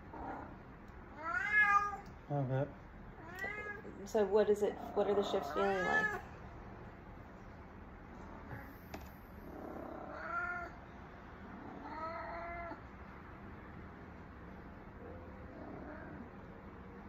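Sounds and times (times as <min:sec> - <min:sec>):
cat yowling: 0:01.1 - 0:02.1, 0:05.1 - 0:06.4, 0:09.9 - 0:10.8, 0:11.6 - 0:12.8.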